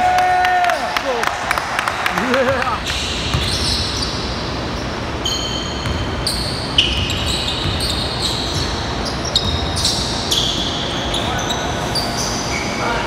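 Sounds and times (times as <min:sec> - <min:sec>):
basketball bouncing: 0:02.3 - 0:04.0, 0:05.7 - 0:10.9
sneakers squeaking on hardwood: 0:02.8 - 0:12.8.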